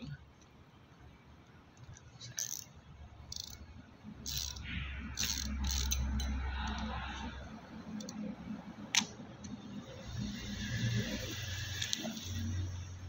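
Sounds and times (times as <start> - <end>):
reel handling clicks: 1.8 - 2.7, 4.3 - 4.6, 5.2 - 6.3
fishing reel whirring: 2.4 - 2.7, 3.3 - 3.6, 4.2 - 8.1, 10.0 - 13.0.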